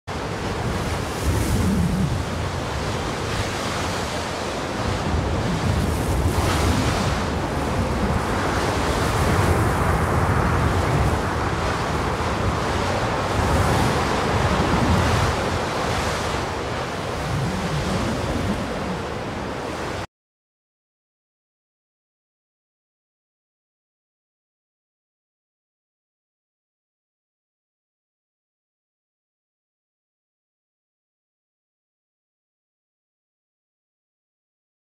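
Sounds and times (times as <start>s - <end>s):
heavy wind gusts: 0.1s - 20.1s.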